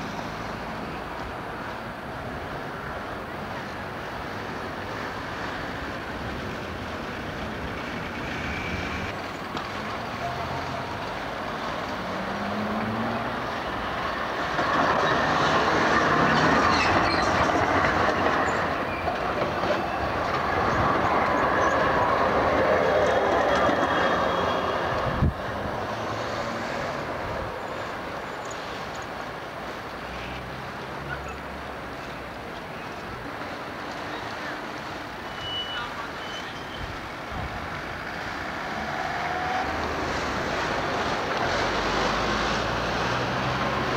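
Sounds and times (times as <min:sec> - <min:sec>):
tram wheels rumbling on rails: 0:00.0 - 0:43.9
high wheel squeals: 0:08.1 - 0:09.2, 0:14.8 - 0:24.9, 0:35.2 - 0:37.0.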